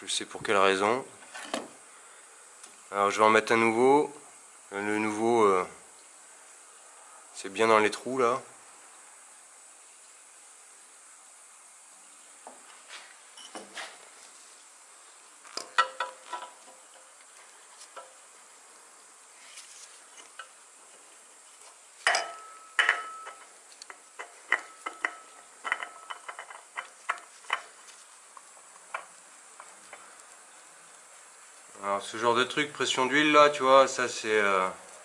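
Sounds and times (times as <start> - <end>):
clinks and taps of handling: 15.6 - 16.8, 22.0 - 27.7
metallic knock with ring: 22.1 - 23.4.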